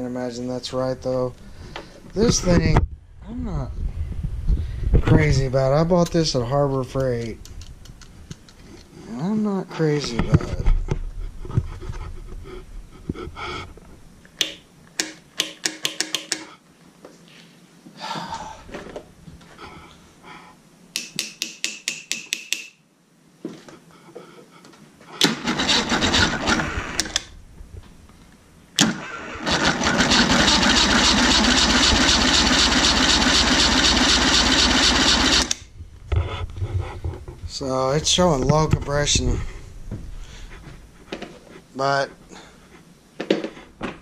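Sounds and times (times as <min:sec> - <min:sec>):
starter clicking: 0:25.2 - 0:27.3, 0:28.8 - 0:35.6
outboard engine cranking: 0:25.4 - 0:27.2, 0:28.8 - 0:35.6.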